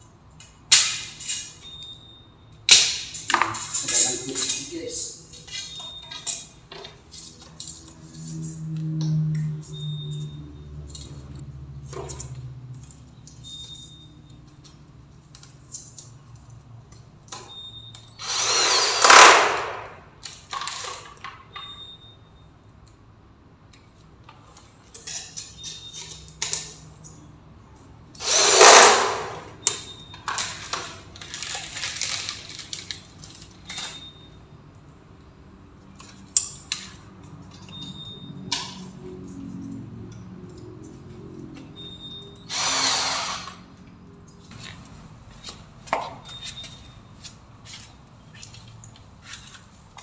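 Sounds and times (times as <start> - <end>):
electric drill running: 18.2 - 19.8, 28.2 - 29.2, 42.5 - 43.6.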